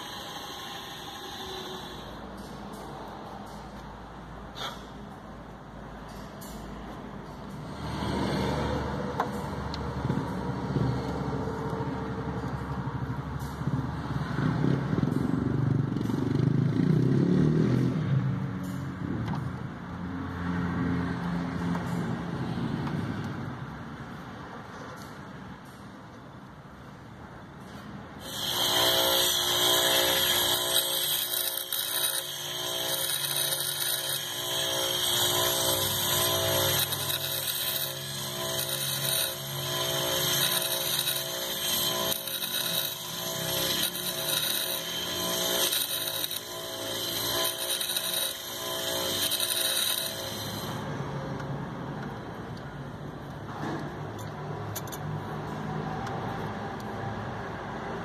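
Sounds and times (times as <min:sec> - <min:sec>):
bench grinder grinding metal: 0:00.0 - 0:02.9, 0:28.2 - 0:51.2.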